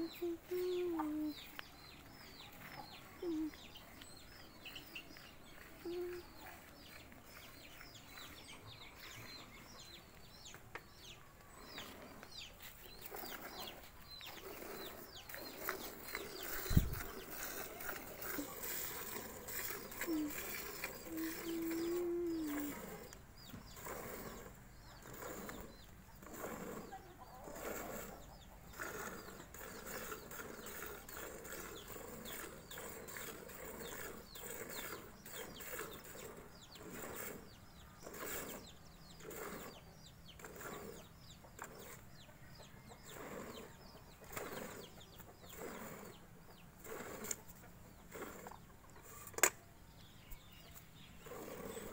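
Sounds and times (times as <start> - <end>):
milk squirting into a steel bucket: 16.4 - 21.8.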